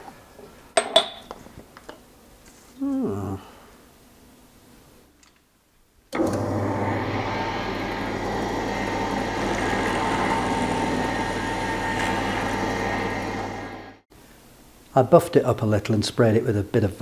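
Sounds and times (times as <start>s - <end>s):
pillar drill drilling copper: 6.2s - 13.9s
low motor hum: 6.2s - 14.0s.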